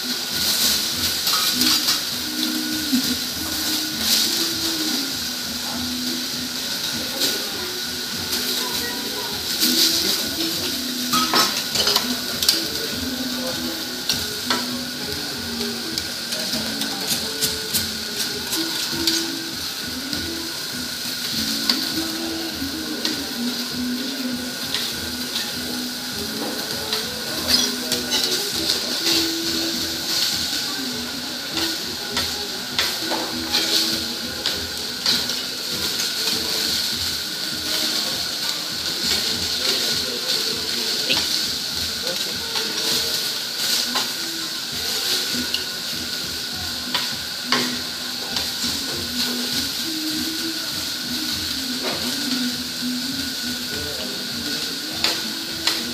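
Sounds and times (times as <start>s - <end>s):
seafood sizzling on a griddle: 0.0s - 55.9s
metal spatula scraping griddle: 24.7s - 30.2s.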